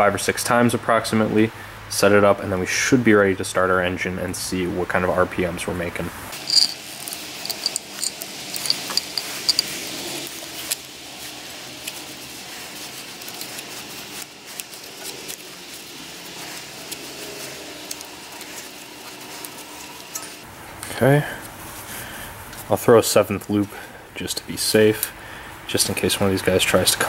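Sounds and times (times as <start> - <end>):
wire rubbing and clicking: 6.4 - 9.9.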